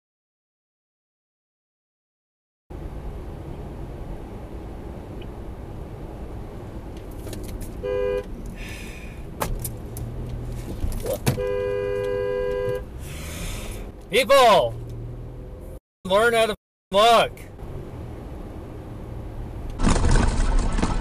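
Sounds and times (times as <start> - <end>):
road and engine rumble: 2.7 - 21.0
two-note car horn: 7.8 - 8.3, 11.4 - 12.9.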